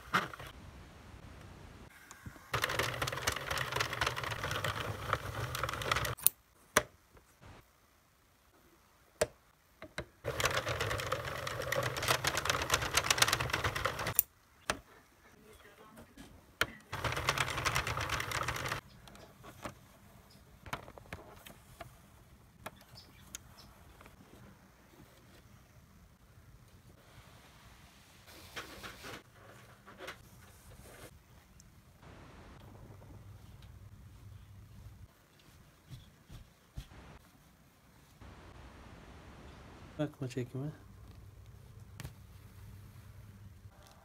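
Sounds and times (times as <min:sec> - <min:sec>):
knitting machine clattering: 0:02.5 - 0:06.3, 0:10.2 - 0:14.3, 0:16.9 - 0:18.8.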